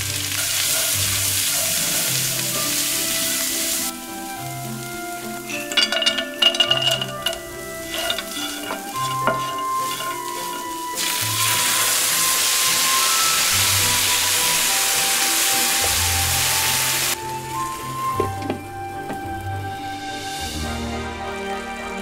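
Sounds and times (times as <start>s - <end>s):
food sizzling in a pan: 0.0s - 18.3s
soft background music: 0.0s - 22.0s
wooden spoon scraping a pan: 5.5s - 11.0s.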